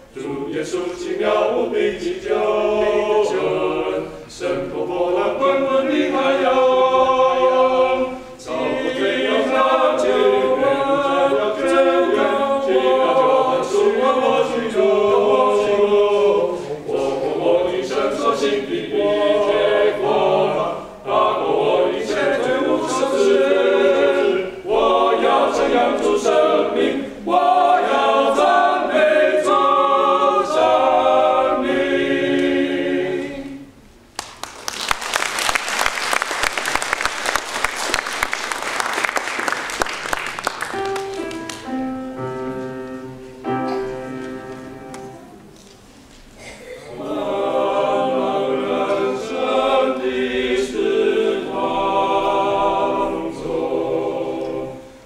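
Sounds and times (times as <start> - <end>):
men singing a cappella: 0.1 - 33.6, 46.9 - 54.8.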